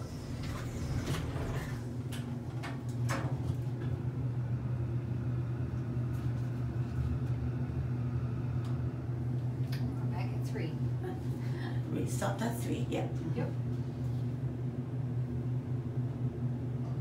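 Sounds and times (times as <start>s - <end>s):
elevator doors sliding shut: 0.0s - 3.9s
elevator low hum: 0.0s - 17.0s.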